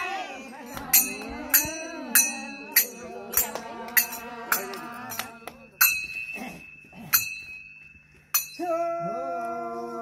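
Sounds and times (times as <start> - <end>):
metallic strikes ringing like a bell: 0.7 - 9.1.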